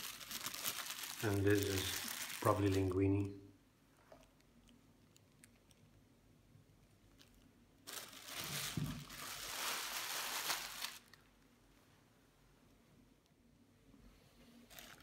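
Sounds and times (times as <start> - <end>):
plastic bag crinkling: 0.0 - 3.3, 7.1 - 11.3, 14.7 - 15.0.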